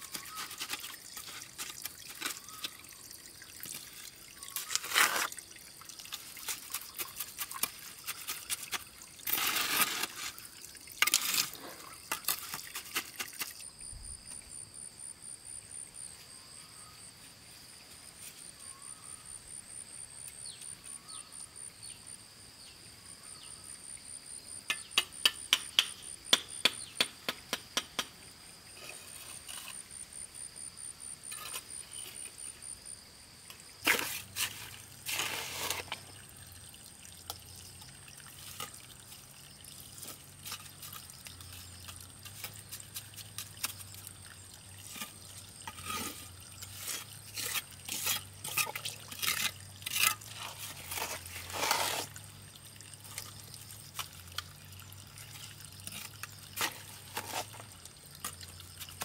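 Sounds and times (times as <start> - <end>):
trowel scraping wet mortar: 0.0 - 2.7, 3.6 - 5.4, 6.2 - 13.6, 28.8 - 29.9, 31.2 - 32.2, 33.8 - 36.2, 40.0 - 44.2, 44.8 - 52.4, 55.3 - 59.0
insects trilling: 0.0 - 59.0
trowel tapping bricks: 24.7 - 28.1.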